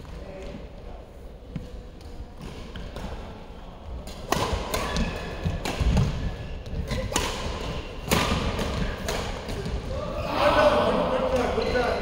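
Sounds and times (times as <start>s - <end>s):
racket hitting shuttlecock: 4.0s - 10.0s.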